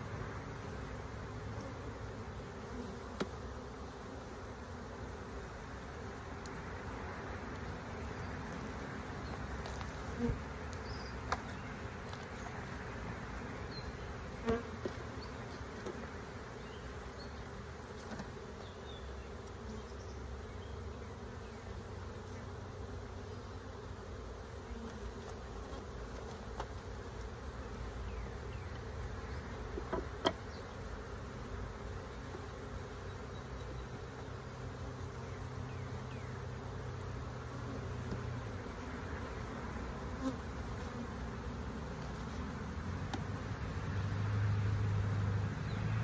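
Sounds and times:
bees humming: 0.0 - 46.0
knocks of wooden hive frames: 29.7 - 30.5.

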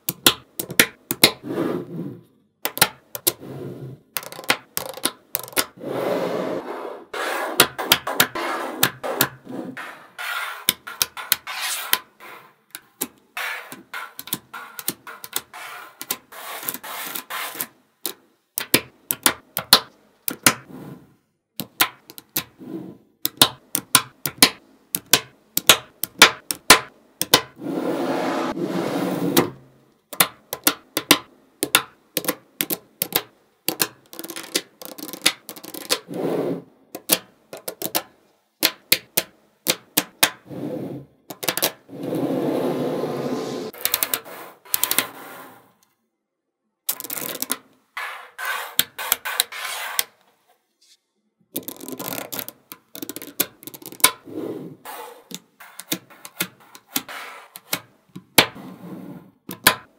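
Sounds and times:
magnetic balls scraping and rolling: 0.6 - 19.3, 26.0 - 29.7, 30.5 - 38.0, 39.8 - 45.9, 46.9 - 50.3, 51.6 - 59.7
magnetic balls clicking together: 4.2 - 5.8, 12.7 - 16.3, 18.0 - 20.6, 21.6 - 22.6, 23.2 - 27.6, 30.1 - 36.1, 36.9 - 40.4, 41.3 - 41.8, 46.9 - 47.6, 51.6 - 54.2.

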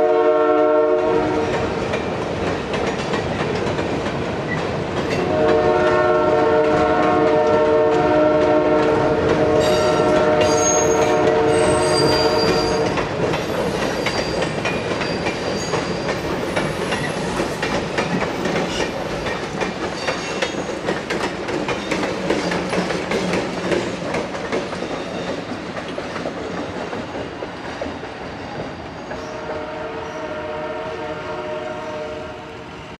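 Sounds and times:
multi-note train horn: 0.0 - 1.6, 5.2 - 13.0, 29.3 - 33.0
train wheels clicking over rail joints: 1.0 - 29.7.

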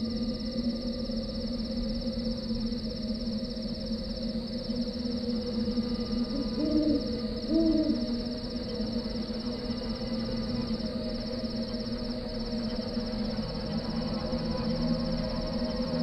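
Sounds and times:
insects trilling: 0.0 - 16.0
low drone: 0.0 - 16.0
owl hooting: 5.8 - 11.4.

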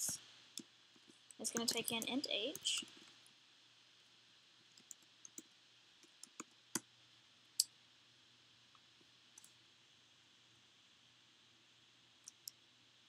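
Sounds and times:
faint hiss and hum: 0.0 - 13.0
keyboard and mouse clicks: 4.8 - 6.9, 12.3 - 12.6.

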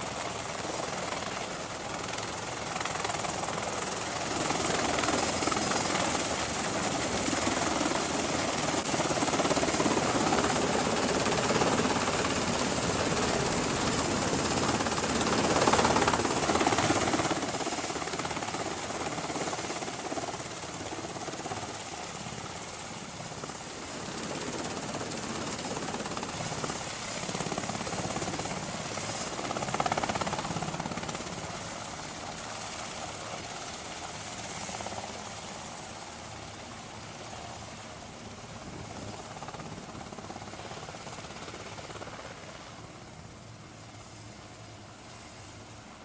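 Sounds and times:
helicopter rotor and turbine: 0.0 - 46.0.

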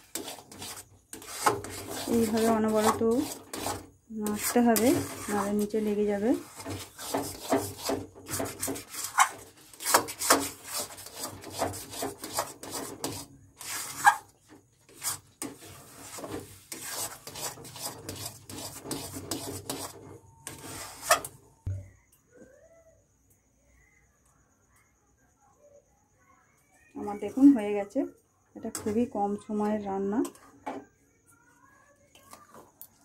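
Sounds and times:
metal spatula scraping pan: 0.0 - 21.4.

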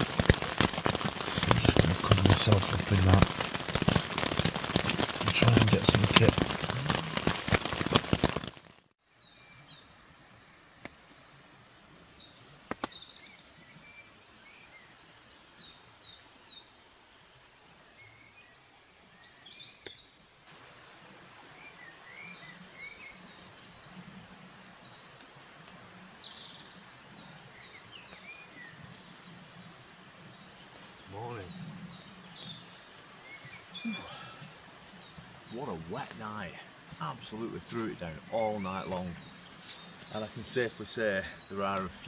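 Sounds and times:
woodland birds singing: 0.0 - 7.9, 9.0 - 42.0
heavy rain drumming on a tent: 0.0 - 8.8, 29.6 - 37.9.

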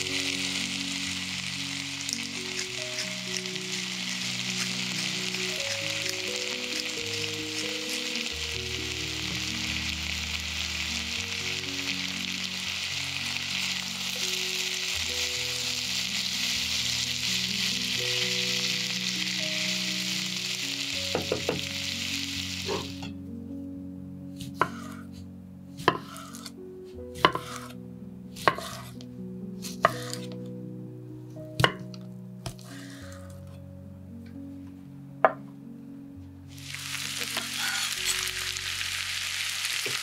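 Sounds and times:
food sizzling in a pan: 0.0 - 23.2, 24.4 - 25.0, 25.8 - 26.5, 27.2 - 27.8, 28.4 - 29.0, 29.6 - 30.3, 36.5 - 40.0
knife chopping on wooden board: 24.4 - 25.0, 25.8 - 26.4, 27.2 - 27.7, 28.4 - 28.9.

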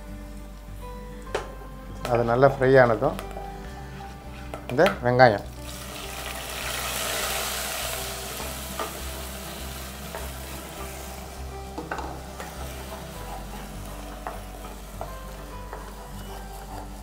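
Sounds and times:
paste sizzling in hot oil: 5.6 - 17.0
spatula scraping a pot: 12.4 - 17.0.

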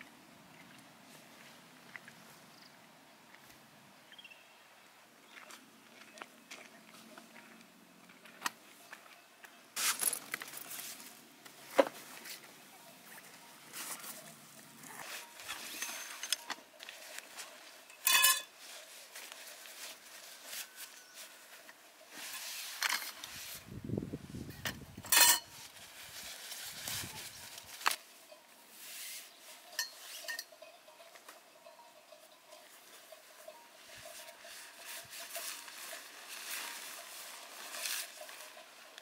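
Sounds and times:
metal tent poles clinking: 9.8 - 23.6, 24.5 - 39.0
nylon bags rustling: 9.8 - 23.7, 25.2 - 28.1, 34.1 - 39.0
sharp ringing metallic clinks: 17.9 - 18.5, 29.6 - 37.0.

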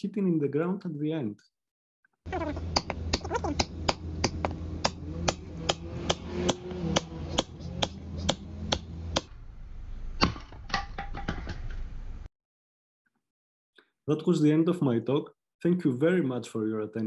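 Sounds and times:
low hum: 2.3 - 12.3
axe chopping wood: 2.7 - 9.3, 10.2 - 11.5
wood hitting the ground: 10.2 - 12.0.

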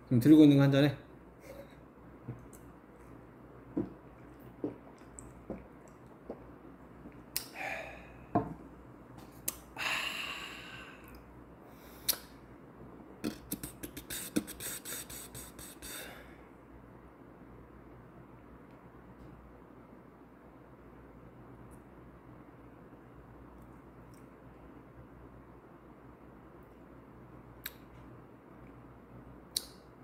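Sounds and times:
person gulping from bottle: 3.8 - 6.5
breathy exhale: 7.5 - 8.3, 9.8 - 11.1, 15.8 - 16.4.

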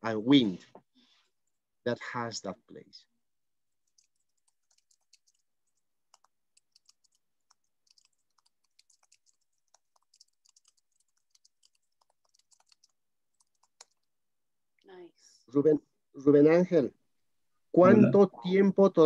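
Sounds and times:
computer keyboard typing: 3.8 - 14.1.

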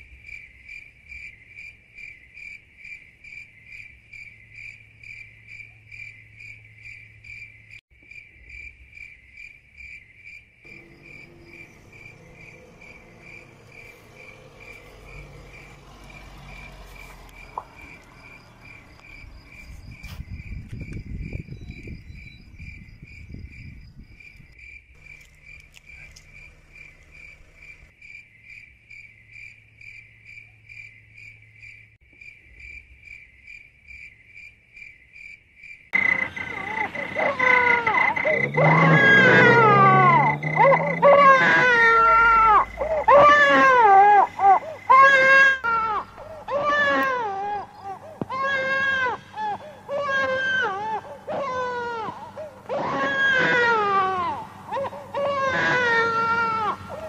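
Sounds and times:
crickets chirping: 0.0 - 57.0
van engine rumbling: 10.7 - 23.0, 25.0 - 27.9, 36.0 - 57.0.

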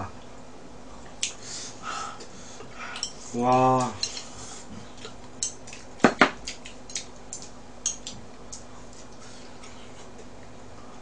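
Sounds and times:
chopsticks clicking against dish: 2.9 - 4.3, 5.0 - 9.8.

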